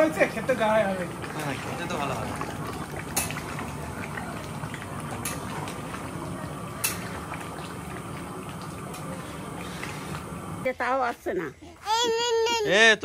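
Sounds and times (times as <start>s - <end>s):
curry bubbling in a pan: 0.0s - 10.7s.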